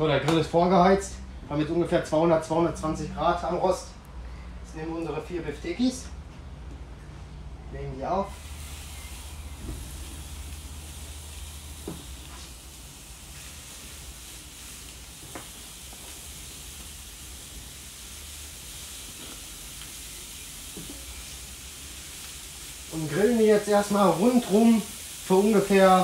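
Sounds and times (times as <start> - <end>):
meat sizzling on a grill: 8.3 - 26.0.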